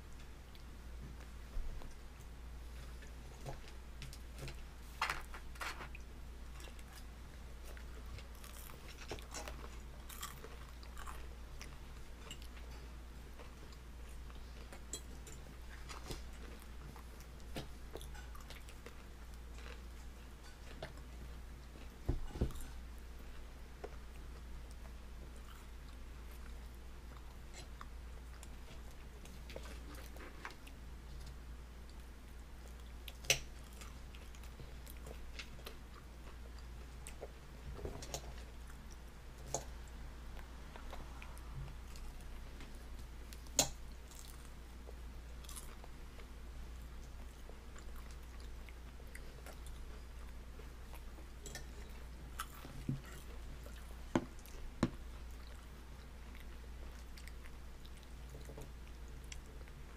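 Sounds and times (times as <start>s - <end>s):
steady low hum: 0.0s - 59.9s
baby chewing chips: 2.7s - 39.8s.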